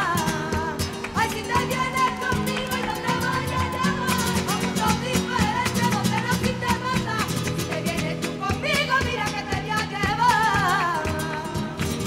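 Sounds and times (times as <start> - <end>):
wordless singing: 0.0 - 11.8
flamenco guitar strumming: 0.0 - 12.0.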